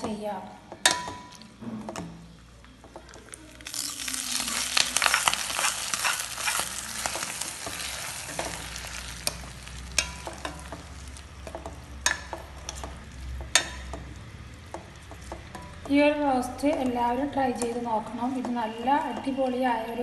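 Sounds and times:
frying in hot oil sizzling: 2.9s - 15.8s.

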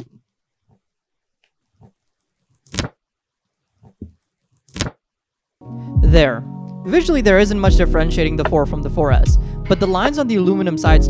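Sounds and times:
sharp plastic crackles: 1.4s - 3.0s, 3.8s - 5.0s.

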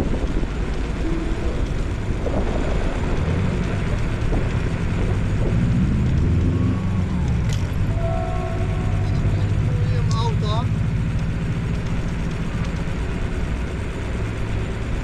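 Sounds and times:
wind buffeting microphone: 0.0s - 14.0s
low rumble: 0.0s - 15.0s
motor vehicle passing: 0.0s - 15.0s.

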